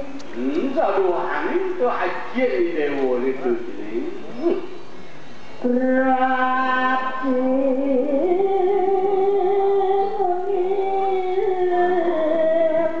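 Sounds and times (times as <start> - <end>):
person singing long note: 5.6 - 13.0.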